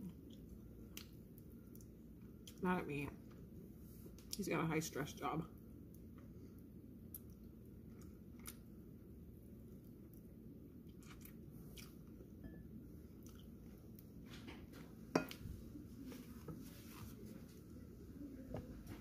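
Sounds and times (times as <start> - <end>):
person chewing: 0.1 - 2.6, 6.0 - 8.8, 9.7 - 12.2, 13.1 - 14.0.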